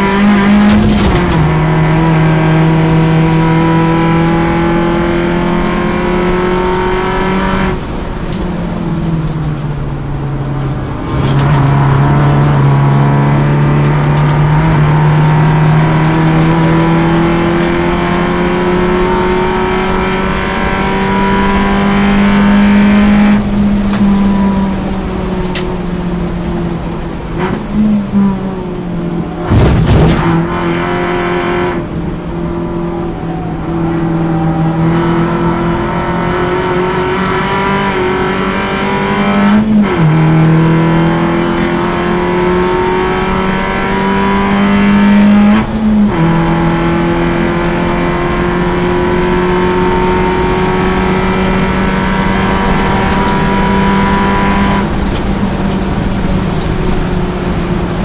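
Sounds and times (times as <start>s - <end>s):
race car engine pulling hard: 0.0s - 58.0s.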